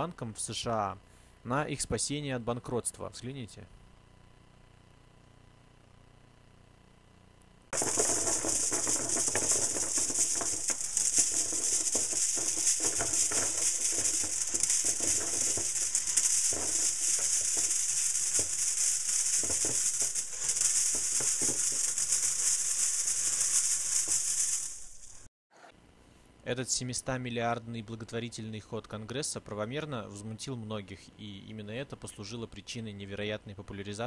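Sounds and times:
coins pouring and clinking: 7.8 - 25.2.

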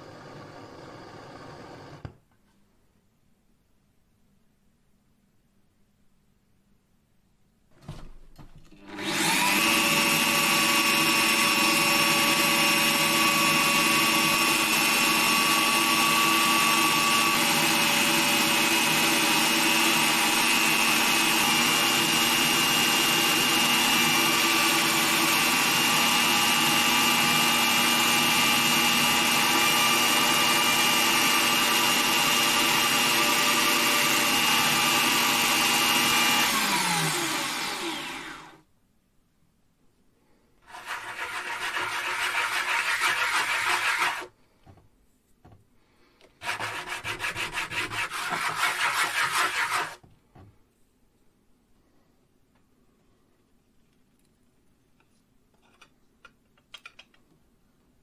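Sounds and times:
electric drill motor whining: 0.0 - 2.1, 8.8 - 38.6
abrasive paper against spinning blade: 40.7 - 44.3.

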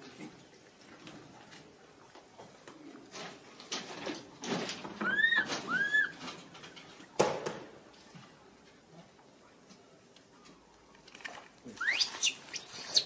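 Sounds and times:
baby monkey coo calls: 5.0 - 6.1, 11.8 - 13.0.

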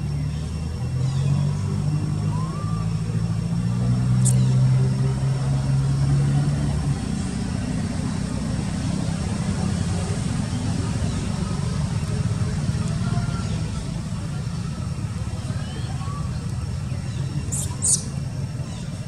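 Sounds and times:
motor engine humming: 0.0 - 19.0.

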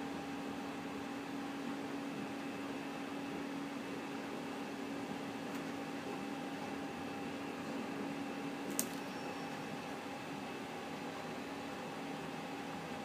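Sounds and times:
printer mechanical hum: 0.0 - 13.0
sharp click: 8.7 - 9.0.

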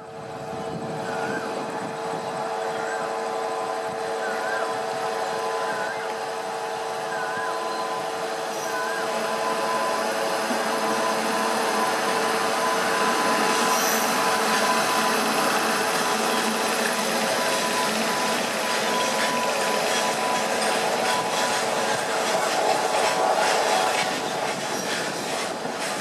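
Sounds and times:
locomotive electrical whine: 0.0 - 26.0
train wheels rumbling on rails: 0.0 - 26.0.

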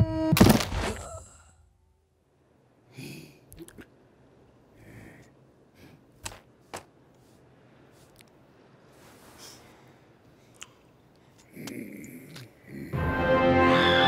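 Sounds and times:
person sighing: 0.9 - 1.7.

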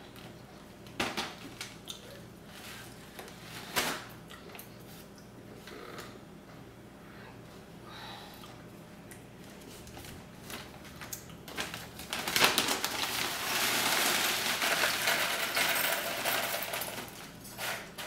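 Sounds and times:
plastic bag rustling and clicking: 9.8 - 15.9
charcoal pieces pouring into glass: 12.6 - 17.1.

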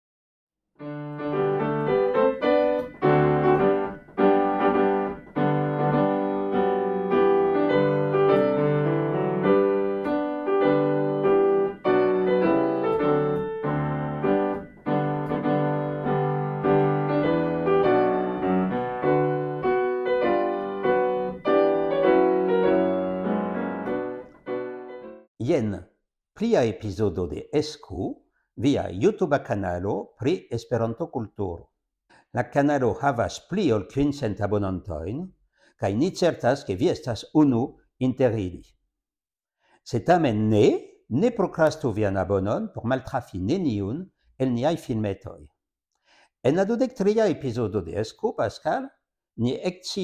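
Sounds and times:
piano music: 0.8 - 25.3.

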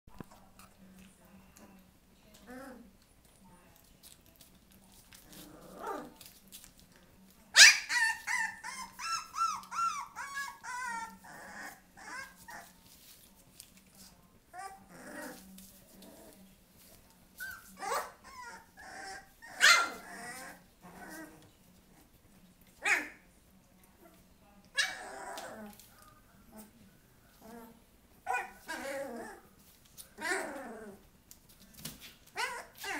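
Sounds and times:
puppies yelping and whining: 7.6 - 12.7, 17.4 - 21.2, 32.4 - 32.9.

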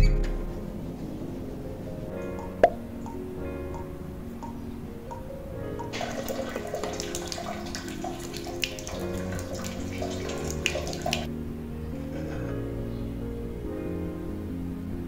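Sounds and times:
soft background music: 0.0 - 15.0
tap water splashing into sink: 5.8 - 11.3.

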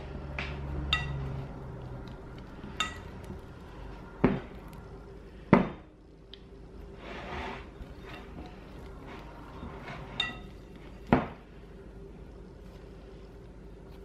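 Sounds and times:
glass bowl clinking: 0.8 - 1.4, 2.6 - 3.3, 10.0 - 10.7.

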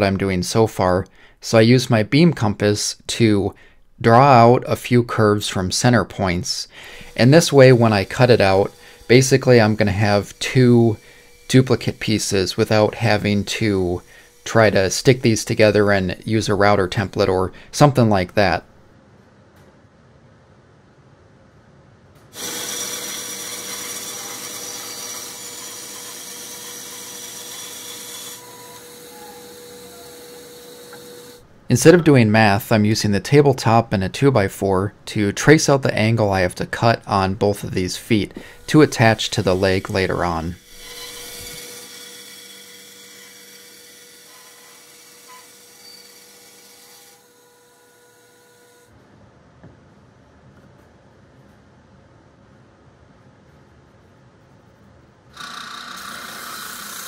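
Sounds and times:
band saw cutting wood: 6.1 - 18.6, 22.4 - 31.4, 35.7 - 48.9, 55.4 - 57.0.

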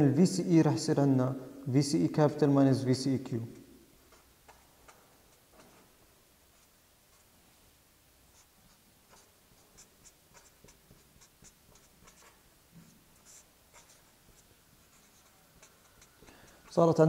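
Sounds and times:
marker scratching on paper: 4.1 - 7.4, 8.3 - 17.0.

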